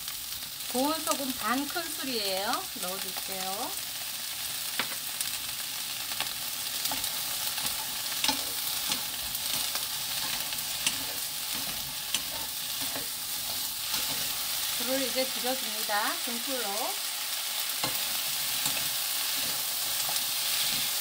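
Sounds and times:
onions sizzling in a frying pan: 0.0 - 21.0
wooden spatulas scraping a pan: 6.8 - 14.6.

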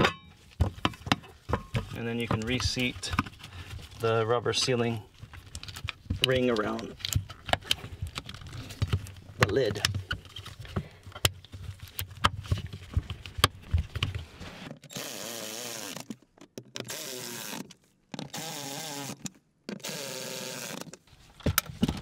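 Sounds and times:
cover and rubber seal handled: 0.0 - 14.9, 20.8 - 22.0.

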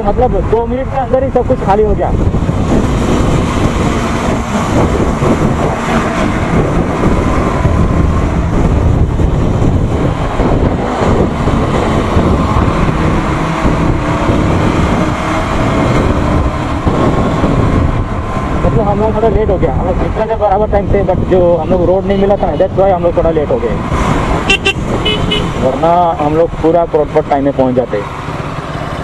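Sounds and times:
wind rushing over microphone: 0.0 - 29.0
motorcycle engine running: 28.1 - 29.0.

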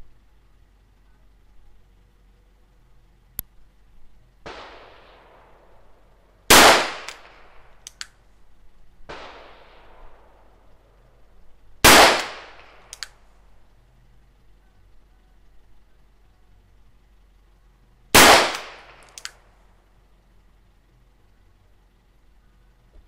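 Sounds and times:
distant bangs with long echoes: 4.4 - 7.8, 9.0 - 11.0, 11.8 - 12.9, 18.2 - 19.2
revolver shots with echo: 6.5 - 7.8, 11.8 - 13.2, 18.2 - 19.4
sharp click: 7.0 - 8.2, 12.2 - 13.2, 18.5 - 19.4.

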